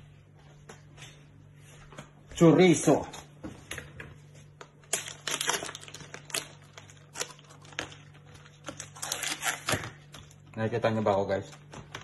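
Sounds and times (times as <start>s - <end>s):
plastic packaging crinkling: 4.5s - 10.5s.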